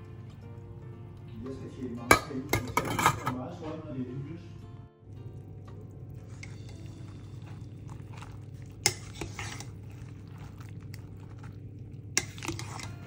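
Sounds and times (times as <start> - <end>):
utensils clinking against a pot: 1.6 - 3.4, 5.7 - 13.0
steady low hum: 4.6 - 13.0.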